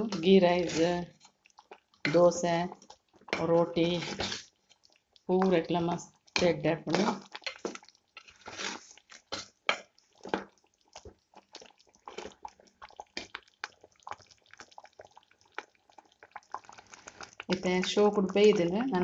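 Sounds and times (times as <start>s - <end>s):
steel spoon stirring: 0.0s - 1.3s, 3.2s - 4.8s, 6.3s - 10.4s
thick gravy bubbling: 0.0s - 19.0s.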